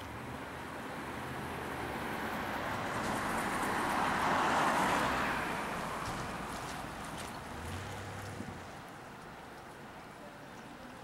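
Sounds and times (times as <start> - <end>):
motor vehicle running: 6.0 - 8.9.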